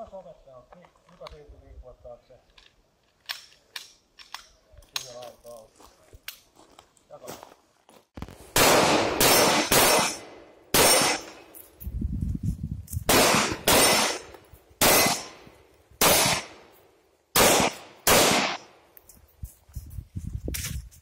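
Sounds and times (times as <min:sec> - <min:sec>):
pistol shots echoing: 0:08.6 - 0:11.5, 0:13.1 - 0:15.4, 0:16.0 - 0:16.6, 0:17.4 - 0:18.8.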